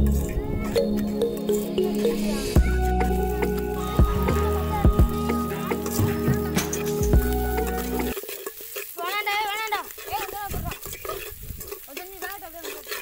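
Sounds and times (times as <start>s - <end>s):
background music: 0.0s - 8.2s
food sizzling in a pot: 0.0s - 13.0s
metal spoon scraping pot: 5.6s - 13.0s.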